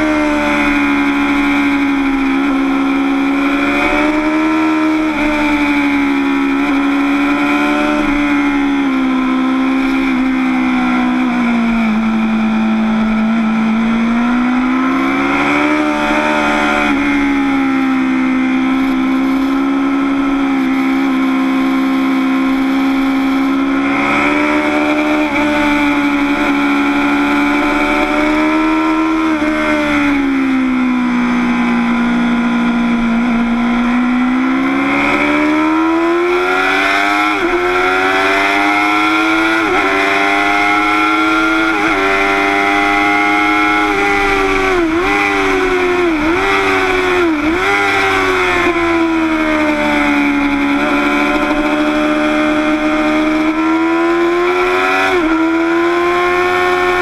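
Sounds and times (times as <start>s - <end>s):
motorcycle engine at speed: 0.0s - 57.0s.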